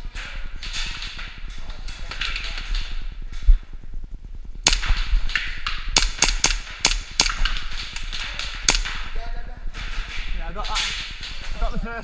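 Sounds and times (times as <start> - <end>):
airsoft gun shots: 4.6 - 9.2.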